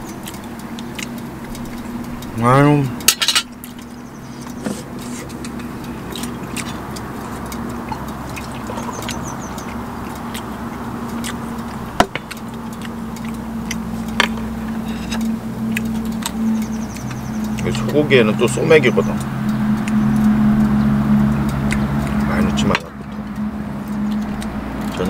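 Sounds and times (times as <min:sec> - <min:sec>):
steady low hum: 0:00.0 - 0:25.0
can and bottles clinking: 0:03.1 - 0:03.5.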